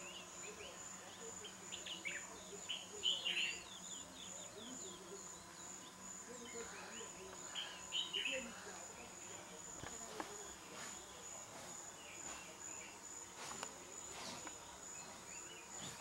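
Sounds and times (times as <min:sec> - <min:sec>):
birds chirping and calling: 0:00.0 - 0:08.8
insects trilling: 0:00.0 - 0:16.0.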